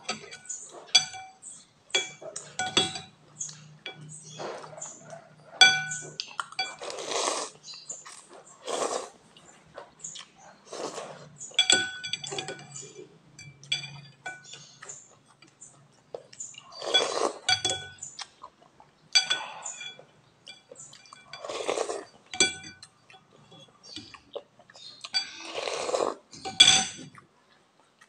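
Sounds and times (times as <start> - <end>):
cutlery clinking on glass bowl: 0.0 - 7.1, 11.4 - 15.6, 16.8 - 18.2, 19.1 - 24.0, 24.8 - 27.2
noisy slurping of soup: 6.8 - 7.6, 8.6 - 9.2, 25.5 - 26.2.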